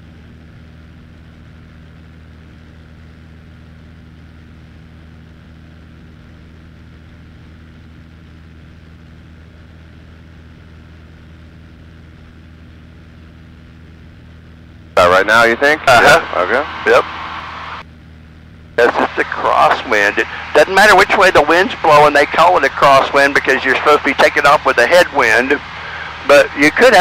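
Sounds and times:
airplane engine drone: 0:00.0 - 0:27.0.

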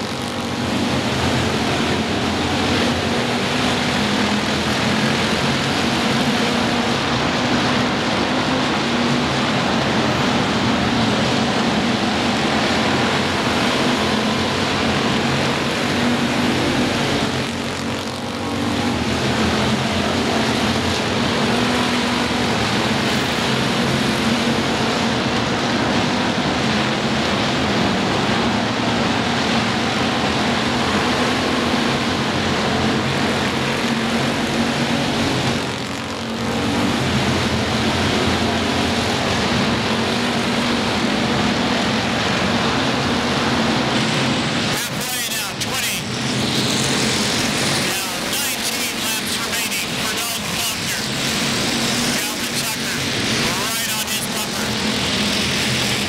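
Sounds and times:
stock car engines racing: 0:00.0 - 0:56.0.

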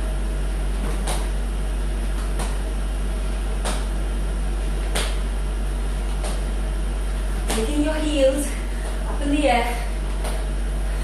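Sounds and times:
steady low hum: 0:00.0 - 0:11.0
jumping jack slaps: 0:00.8 - 0:01.4, 0:02.1 - 0:02.7, 0:03.5 - 0:04.0, 0:04.8 - 0:05.3, 0:06.0 - 0:06.5, 0:07.4 - 0:09.1.

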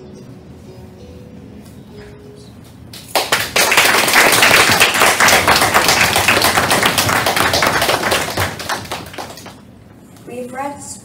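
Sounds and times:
audience applauding: 0:03.0 - 0:09.6.

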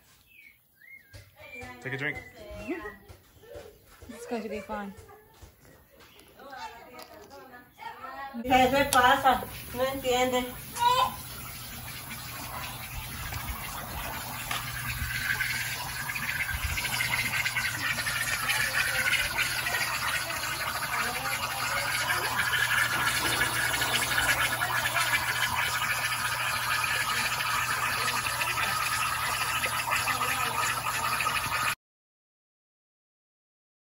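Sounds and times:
water pouring into pond: 0:08.5 - 0:31.8.

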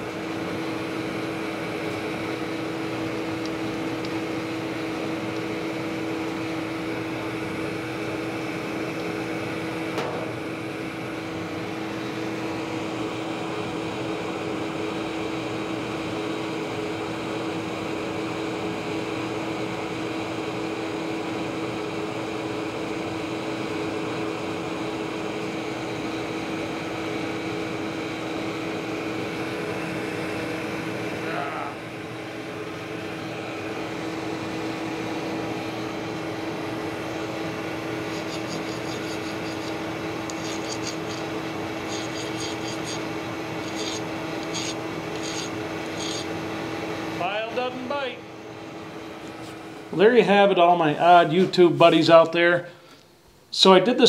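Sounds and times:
fan motor humming: 0:00.0 - 0:54.0.

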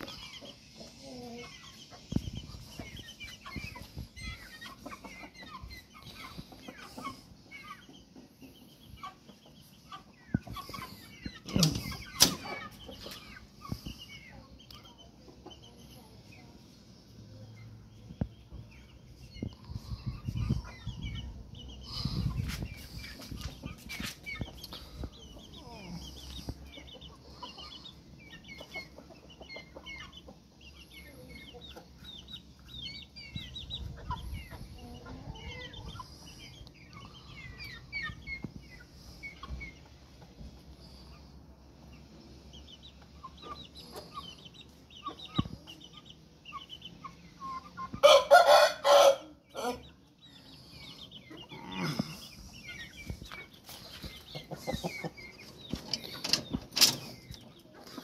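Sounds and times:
chickens clucking: 0:00.0 - 0:58.0
rooster crowing: 0:48.0 - 0:49.8.

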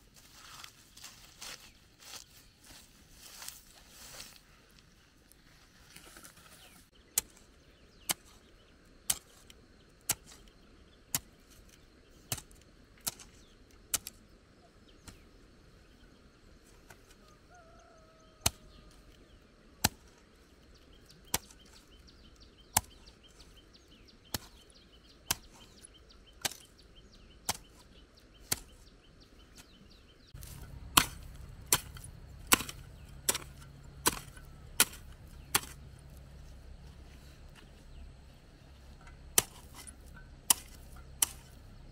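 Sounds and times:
hoe chopping into soil: 0:10.1 - 0:10.5, 0:11.1 - 0:14.2, 0:19.8 - 0:20.2, 0:21.2 - 0:21.8, 0:22.7 - 0:23.2, 0:24.3 - 0:26.8, 0:27.4 - 0:28.9, 0:29.5 - 0:36.3, 0:39.0 - 0:41.6.

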